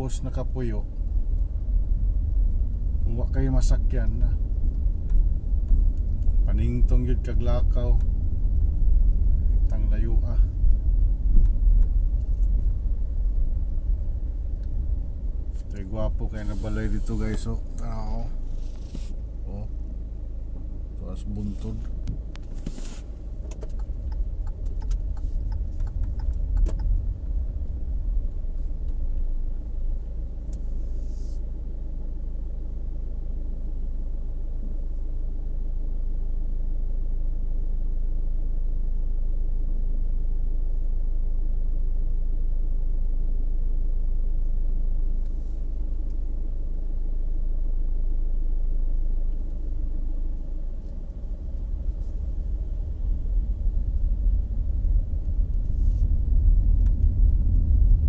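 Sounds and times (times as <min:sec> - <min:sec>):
car engine and tyres rumbling: 0:00.0 - 0:58.0
short hiss: 0:16.3 - 0:17.5, 0:18.5 - 0:19.2, 0:22.6 - 0:23.2.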